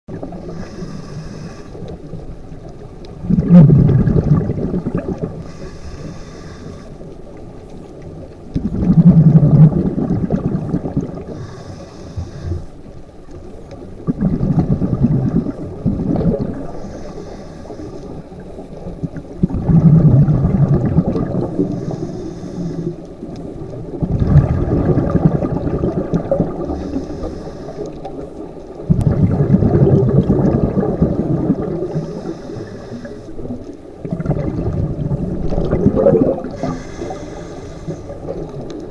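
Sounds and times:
exhaled bubbles rumbling: 0.1 - 1.2, 1.8 - 6.3, 7.0 - 38.9
regulator inhale hiss: 0.4 - 2.0, 5.4 - 7.2, 11.2 - 13.0, 16.6 - 18.4, 21.5 - 23.5, 26.6 - 28.5, 31.8 - 33.8, 36.5 - 38.5.

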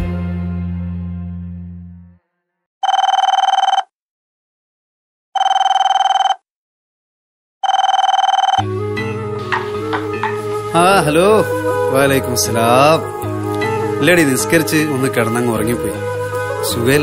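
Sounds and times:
telephone trilling ring: 2.8 - 3.9, 5.4 - 6.4, 7.6 - 8.6.

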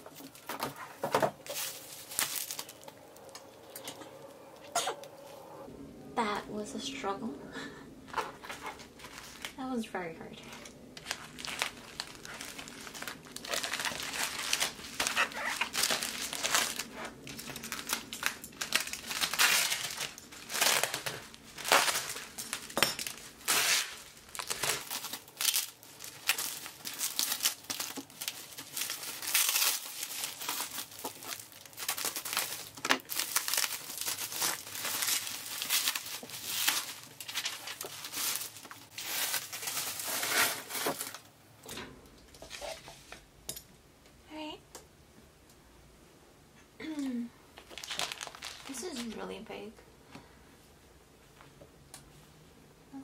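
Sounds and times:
plastic packaging crinkling: 0.0 - 4.9, 8.1 - 9.6, 10.2 - 41.3, 47.6 - 49.7.

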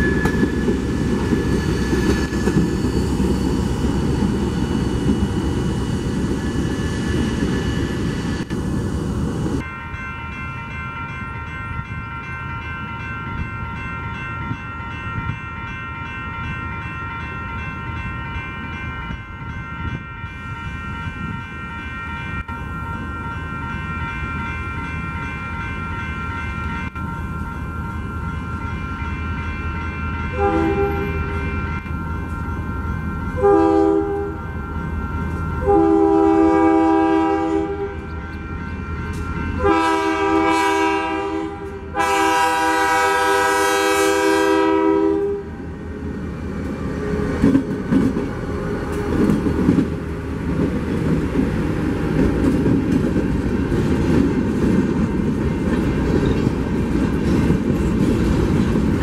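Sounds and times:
train wheels rumbling and clicking: 0.0 - 9.6, 38.0 - 39.6, 46.0 - 59.0
multi-tone train horn blasts: 29.0 - 32.3, 33.3 - 45.7.

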